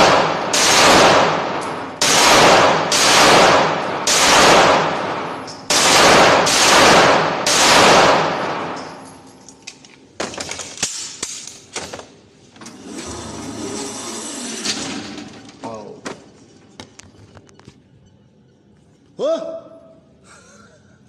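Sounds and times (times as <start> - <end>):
pistol shots echoing: 0.0 - 9.1
pistol clicks and clatter: 8.7 - 12.0.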